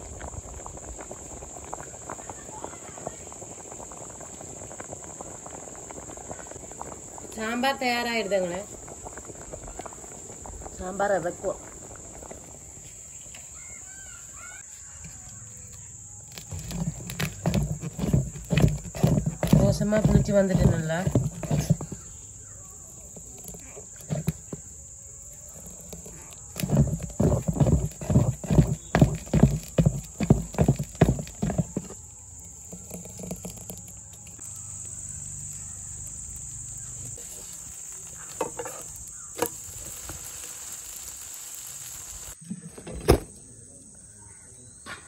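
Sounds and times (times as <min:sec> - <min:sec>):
crickets droning: 0:00.0 - 0:45.0
spoon stirring batter in steel bowl: 0:16.7 - 0:22.3, 0:23.1 - 0:24.7, 0:25.5 - 0:34.4.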